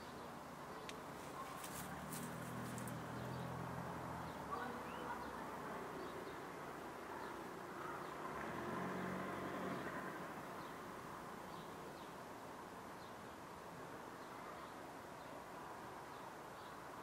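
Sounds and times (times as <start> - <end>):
car passing by: 1.5 - 11.6
faint bird chirps: 4.2 - 6.4.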